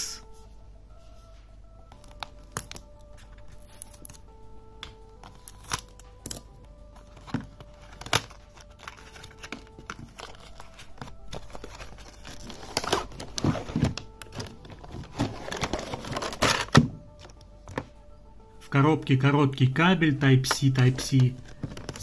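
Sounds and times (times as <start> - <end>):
plastic packaging crinkling: 2.0 - 4.3, 5.2 - 17.4.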